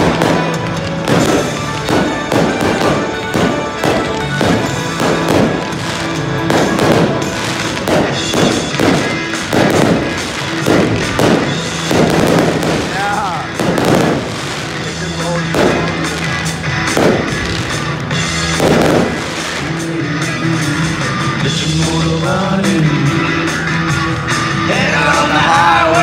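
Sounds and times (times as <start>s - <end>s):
fireworks launching and bursting: 0.0s - 22.8s
music playing: 0.0s - 26.0s.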